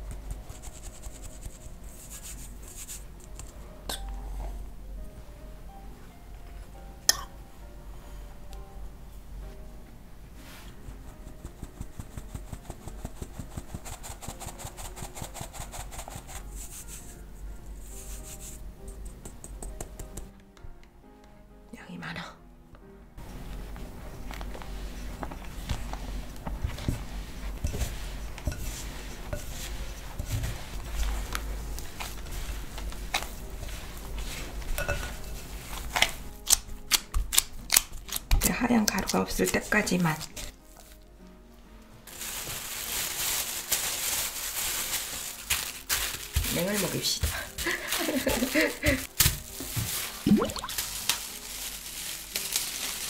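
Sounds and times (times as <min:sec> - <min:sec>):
hand squeezing dough: 0:00.0 - 0:03.6, 0:10.7 - 0:20.3, 0:23.4 - 0:41.0
spatula scraping a glass bowl: 0:26.7 - 0:35.9.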